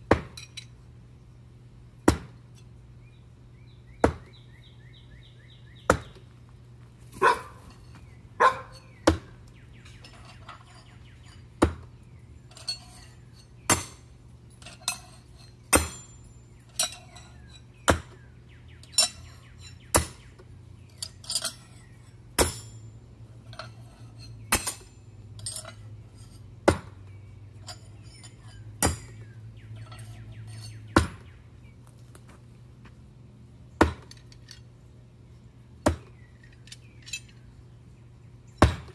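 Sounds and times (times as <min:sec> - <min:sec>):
knives hitting target board: 0:05.9 - 0:06.2, 0:08.5 - 0:09.4.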